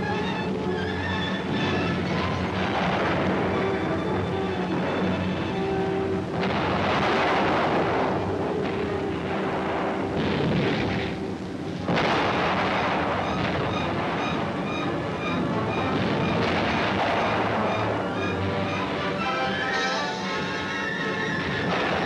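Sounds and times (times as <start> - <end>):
heavy rumbling blasts: 0.0 - 22.0
orchestral film score: 0.0 - 22.0.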